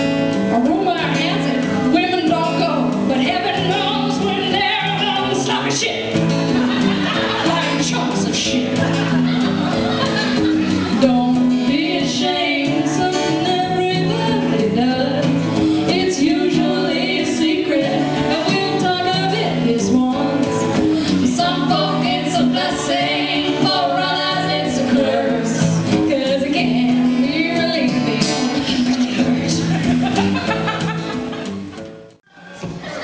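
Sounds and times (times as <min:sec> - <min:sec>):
strummed acoustic guitar: 0:00.0 - 0:33.0
woman singing into microphone: 0:00.5 - 0:06.1, 0:07.4 - 0:08.8, 0:10.9 - 0:29.7.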